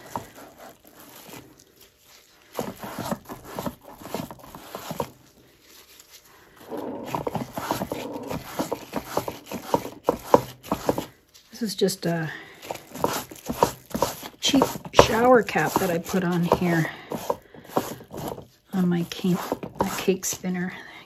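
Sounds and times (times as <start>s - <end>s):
rag rubbing on plastic: 0.0s - 1.6s, 2.5s - 5.3s, 6.6s - 11.1s, 12.7s - 20.3s.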